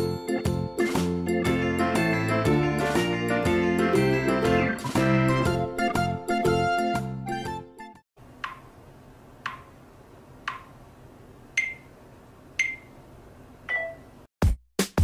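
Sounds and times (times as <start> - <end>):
music: 0.0 - 8.0, 14.4 - 15.0
timer ticks: 8.4 - 8.7, 9.4 - 9.7, 10.4 - 10.8, 11.6 - 11.9, 12.6 - 12.9
drum-machine beat: 14.4 - 15.0.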